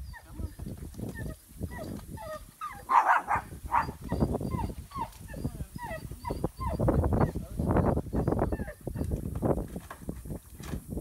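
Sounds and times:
dogs whining and yelping: 0:00.0 - 0:09.2
dogs barking: 0:02.7 - 0:05.1.

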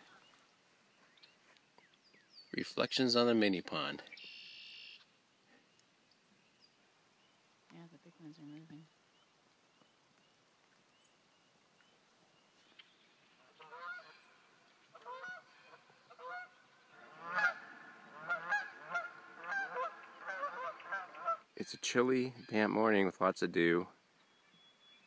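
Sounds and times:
geese honking: 0:13.4 - 0:21.5.

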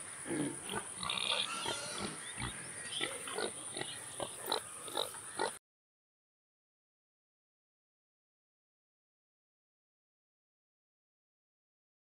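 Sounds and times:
pig grunting: 0:00.0 - 0:05.6.

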